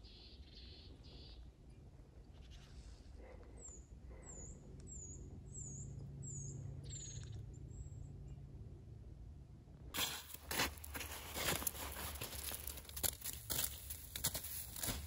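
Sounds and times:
small bird calling: 0.0s - 1.5s
low steady rumble: 1.3s - 15.0s.

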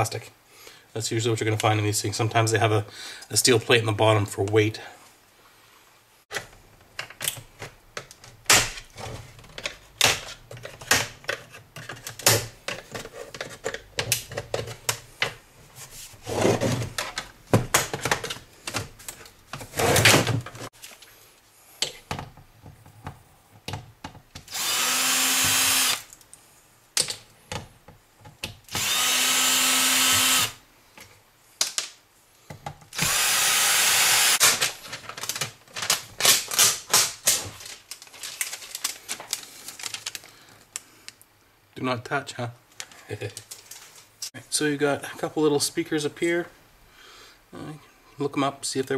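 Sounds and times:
cordless drill running: 24.5s - 26.1s, 28.7s - 30.6s, 33.0s - 34.6s
plastic film being peeled: 34.4s - 40.3s.

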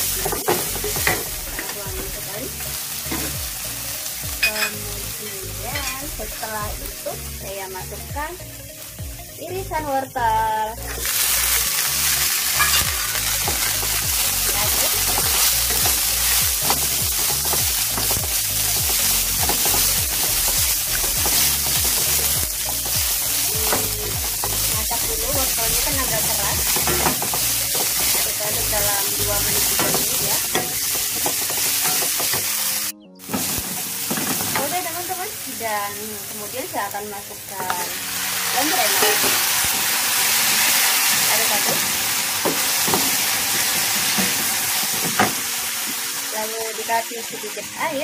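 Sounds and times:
vegetables sizzling in hot oil: 0.0s - 48.0s.

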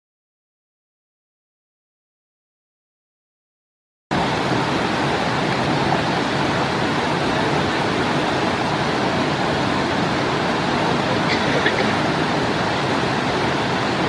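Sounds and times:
creek water rushing: 4.1s - 14.0s.

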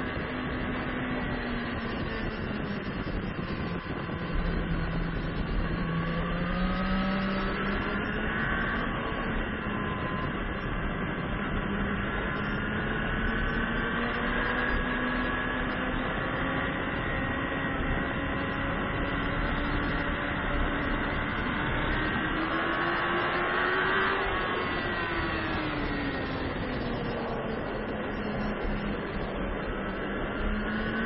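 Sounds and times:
wind rush over microphone: 0.0s - 31.0s.

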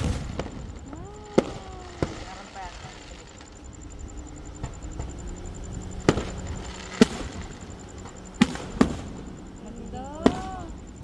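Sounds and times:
firework shells bursting: 0.0s - 11.0s.

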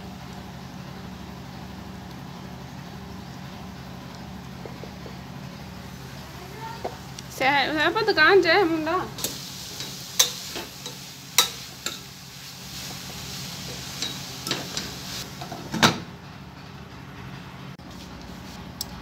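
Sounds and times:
food sizzling in oil: 9.0s - 15.5s.

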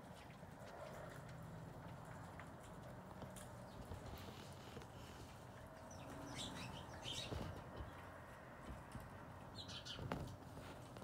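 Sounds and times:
small birds chirping: 3.4s - 8.4s, 9.3s - 10.4s.

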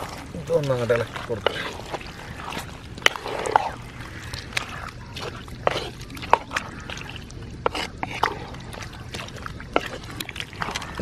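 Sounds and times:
spatula scraping clay pot: 0.0s - 11.0s
thick curry squelching: 0.0s - 11.0s.

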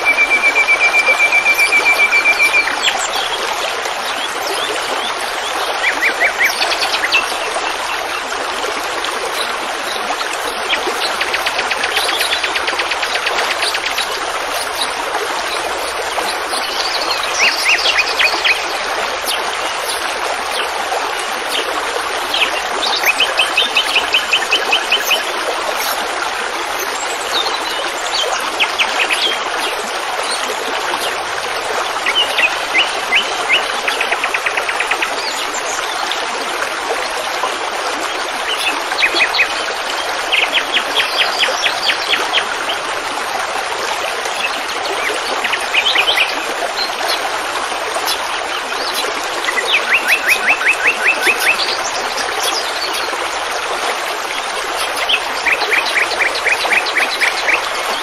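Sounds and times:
songbird trilling: 0.0s - 3.2s, 9.4s - 18.7s
flowing stream water: 0.0s - 58.0s.

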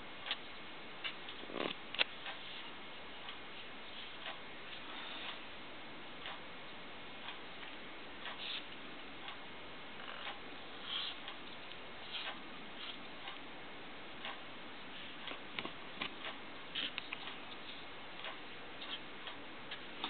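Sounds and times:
clock ticking: 3.1s - 3.6s, 4.2s - 4.6s, 6.2s - 6.5s, 7.1s - 20.0s.

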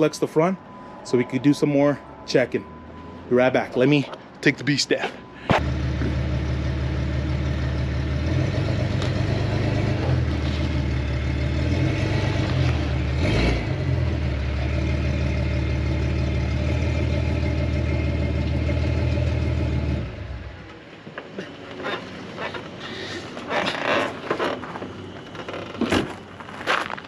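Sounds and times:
car engine revving: 5.5s - 20.6s.

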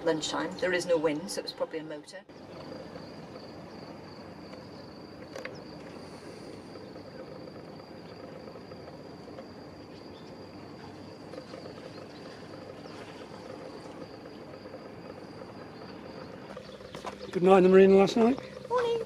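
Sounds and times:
high-pitched insect trill: 0.0s - 19.0s
low background hum: 0.0s - 19.0s.

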